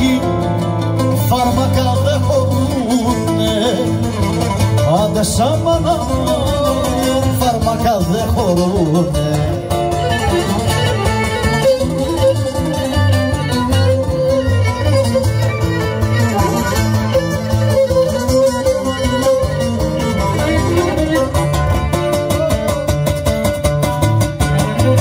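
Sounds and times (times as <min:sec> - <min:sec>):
bowed string melody: 0:00.0 - 0:25.0
plucked strings: 0:00.0 - 0:25.0
pulsing bass: 0:00.0 - 0:25.0.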